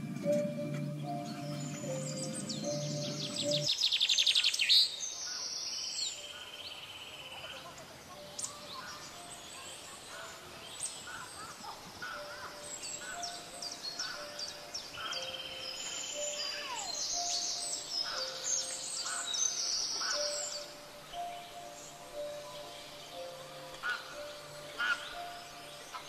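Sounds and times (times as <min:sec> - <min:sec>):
buzzy bird trill: 0:00.0 - 0:03.7
birds chirping: 0:00.0 - 0:26.0
loud rapid bird trill: 0:00.3 - 0:04.7, 0:11.0 - 0:26.0.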